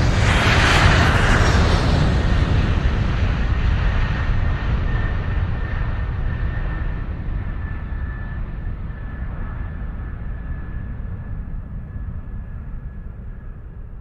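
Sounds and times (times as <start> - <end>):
jet aircraft rumble: 0.0 - 14.0
faint steady whine: 3.7 - 14.0.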